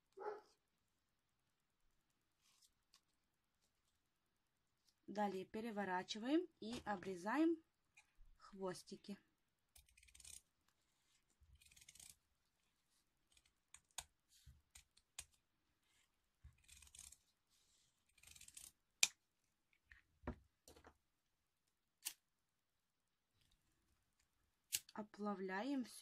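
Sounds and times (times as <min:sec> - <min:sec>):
scissors snipping: 0:13.3 - 0:15.4, 0:22.0 - 0:22.2, 0:24.7 - 0:25.0.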